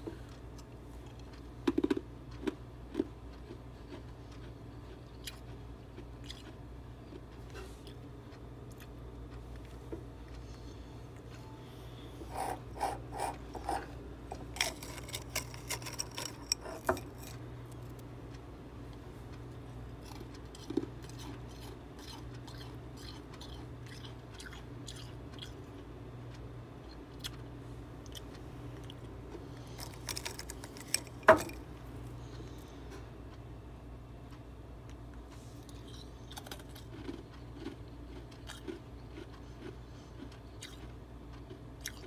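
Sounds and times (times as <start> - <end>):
steady low hum: 0.0 - 42.0
frost being crunched and chewed: 14.3 - 18.0, 28.0 - 31.6, 35.6 - 42.0.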